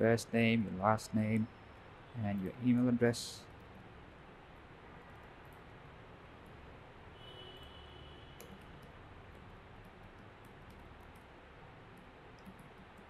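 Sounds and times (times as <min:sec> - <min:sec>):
low steady hiss and hum: 0:00.0 - 0:13.0
keyboard typing: 0:11.9 - 0:13.0.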